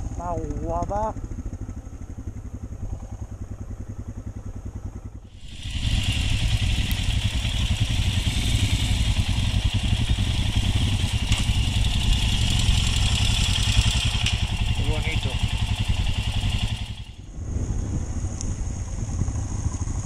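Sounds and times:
motorcycle engine running: 0.0 - 20.0
wind hiss: 5.3 - 20.0.

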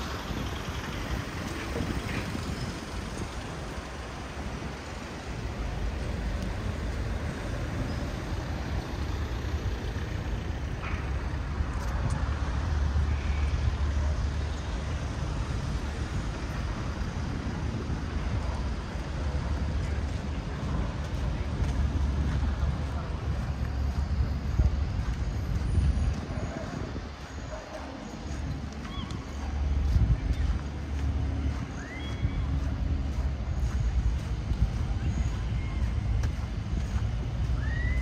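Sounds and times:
passing vehicle engine rumble: 0.0 - 38.0
road traffic rumble: 0.0 - 38.0.

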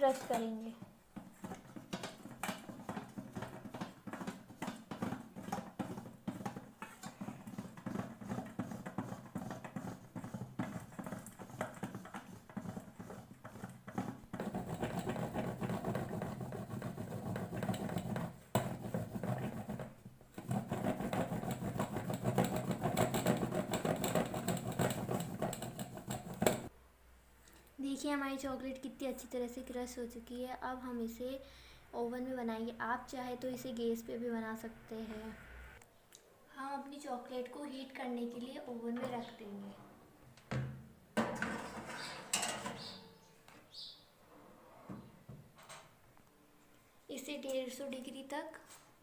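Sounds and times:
chocolate grated on metal grater: 1.3 - 26.7.

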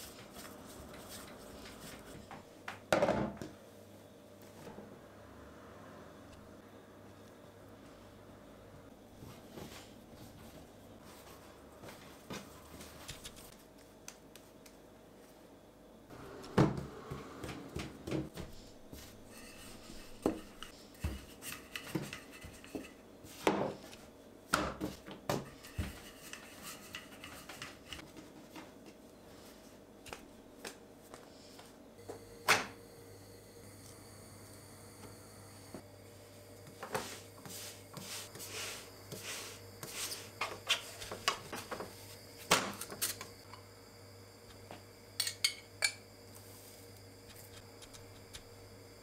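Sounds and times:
hands kneading dough: 0.0 - 2.4
rolling pin on dough: 16.5 - 29.0, 36.6 - 42.0.

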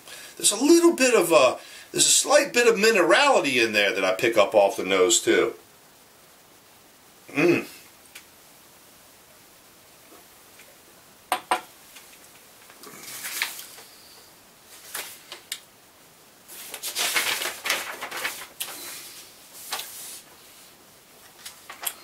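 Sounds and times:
paper rustling: 12.0 - 14.0, 14.7 - 15.5, 16.5 - 22.0.

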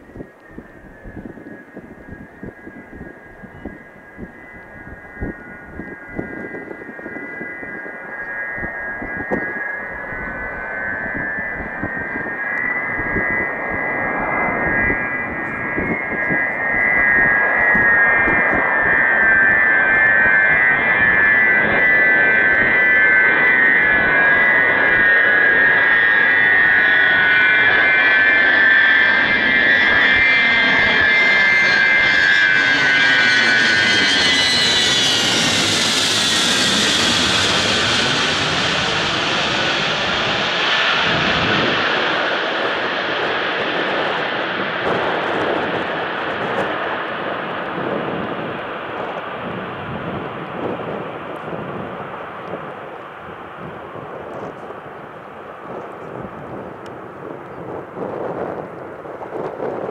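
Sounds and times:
high jet engine whine: 0.0 - 59.9
jet roar with hiss: 10.5 - 51.8.

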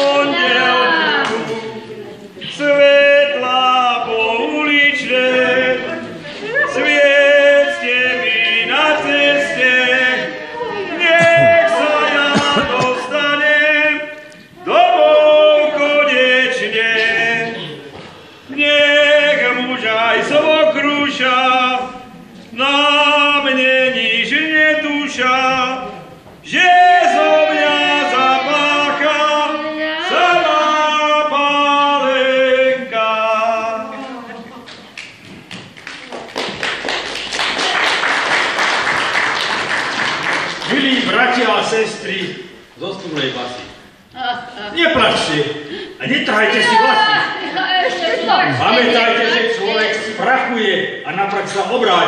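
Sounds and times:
group singing unaccompanied: 0.0 - 34.7, 44.1 - 51.0.

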